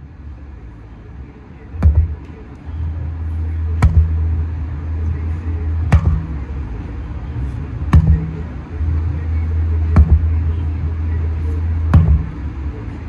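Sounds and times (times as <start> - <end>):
hip-hop music with deep bass: 0.4 - 13.0
sledgehammer strikes: 1.7 - 2.4, 3.4 - 4.5, 5.1 - 6.8, 7.5 - 12.6.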